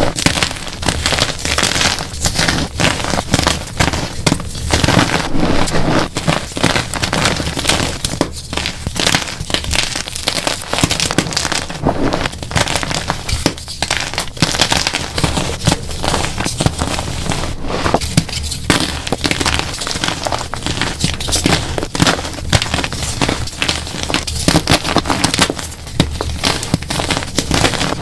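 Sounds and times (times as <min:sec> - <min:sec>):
chalk blocks crunching: 0:00.0 - 0:28.0.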